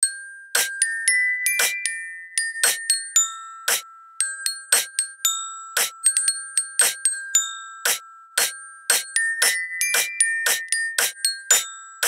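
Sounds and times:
bell lyre melody: 0.0s - 12.0s
beatbox snare sounds: 0.6s - 0.8s, 2.6s - 2.8s, 4.7s - 5.0s, 5.8s - 6.0s, 6.8s - 7.0s, 7.9s - 11.6s.

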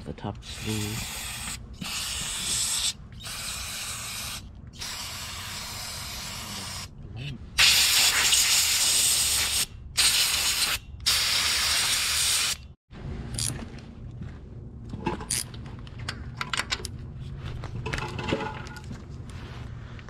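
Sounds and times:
compressed-air blow gun hissing: 0.5s - 6.9s.

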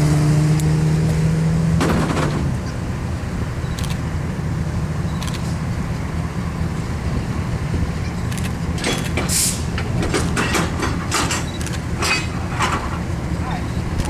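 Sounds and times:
diesel locomotive rumble: 0.0s - 14.0s
sharp clicks and ticks: 3.7s - 4.0s, 11.5s - 11.8s.

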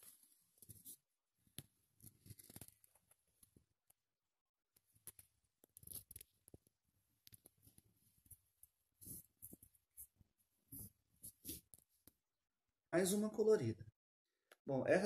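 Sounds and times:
faint rustles and clicks: 0.0s - 3.7s.

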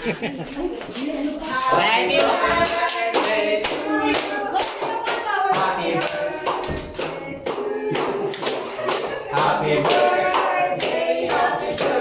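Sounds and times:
people laughing: 0.0s - 1.4s, 8.1s - 9.6s
people singing: 0.9s - 12.0s
people clapping in rhythm: 1.4s - 12.0s.

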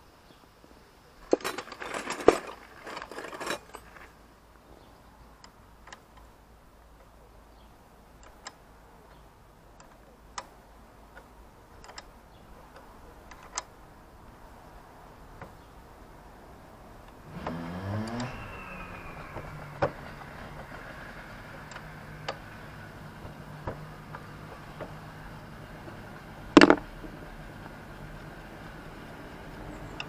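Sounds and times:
spanner clinking against bolt: 1.3s - 4.1s
metal tools clattering: 1.3s - 4.2s.

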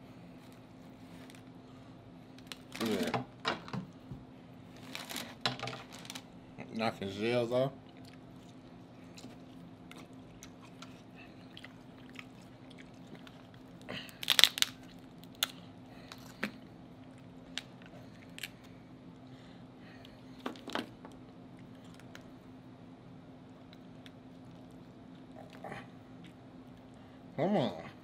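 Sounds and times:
chewing: 7.8s - 13.9s, 21.5s - 22.4s, 23.5s - 27.1s
crab shell cracking: 13.2s - 16.6s.

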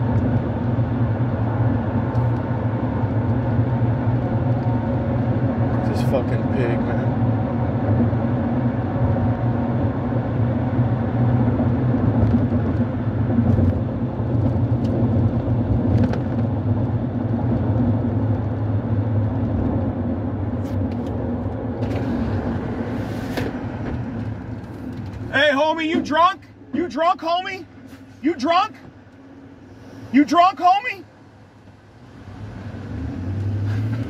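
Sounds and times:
car engine and road noise: 0.0s - 34.0s.

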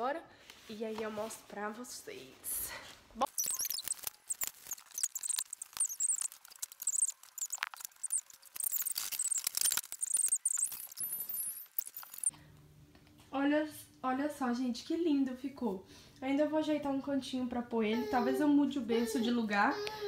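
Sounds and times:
foam squeaking on foam: 3.2s - 12.3s.

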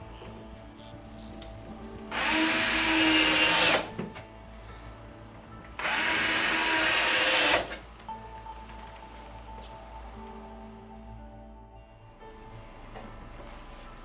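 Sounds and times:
cordless drill driving screws: 2.1s - 3.9s, 5.8s - 7.8s.

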